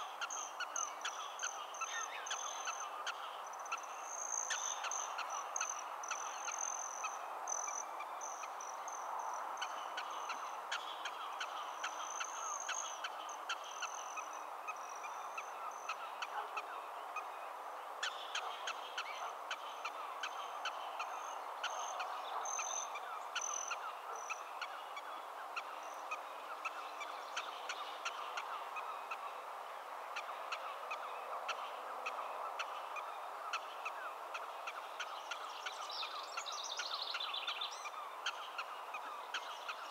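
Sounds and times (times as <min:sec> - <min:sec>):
prairie dogs barking: 0:09.6 - 0:17.3, 0:18.0 - 0:29.4.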